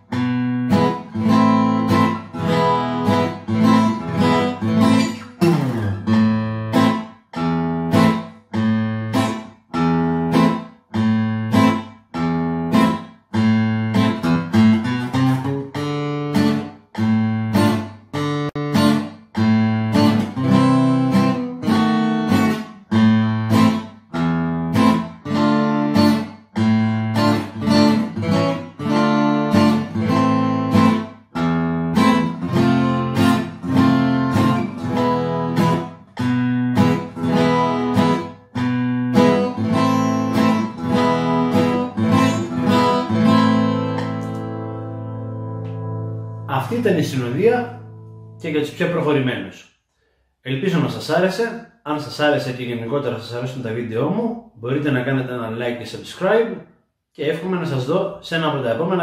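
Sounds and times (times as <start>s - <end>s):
acoustic guitar strummed: 0.0s - 48.7s.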